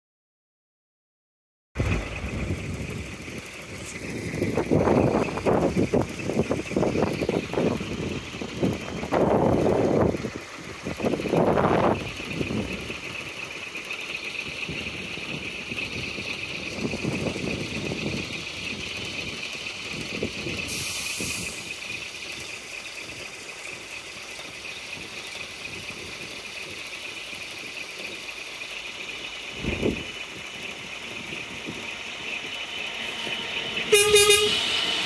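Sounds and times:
short burst of hiss: 0:20.7 - 0:21.8.

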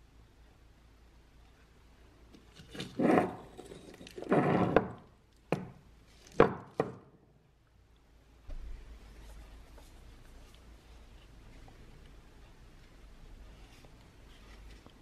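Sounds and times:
metal scraping over a surface: 0:02.8 - 0:05.0.

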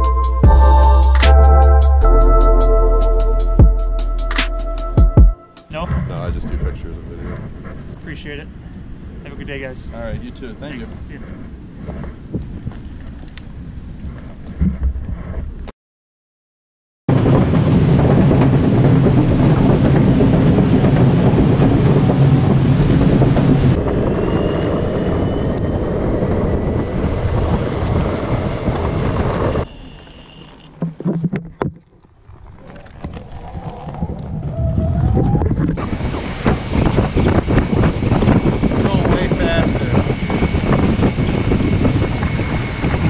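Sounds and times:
wind on microphone: 0:05.7 - 0:15.7, 0:17.1 - 0:43.0
skateboard wheels rolling on pavement: 0:06.6 - 0:15.7, 0:17.1 - 0:35.8.

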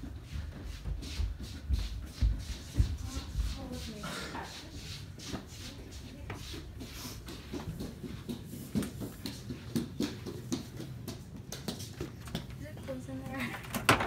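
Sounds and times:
footsteps: 0:00.0 - 0:13.8
knocks and handling noises: 0:07.5 - 0:14.0.

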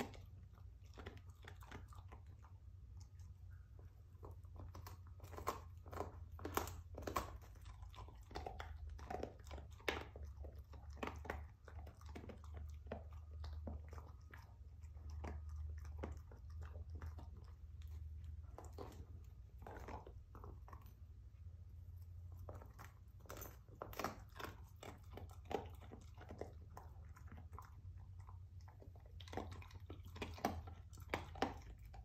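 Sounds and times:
dog crunching a chew bone: 0:00.0 - 0:32.0.

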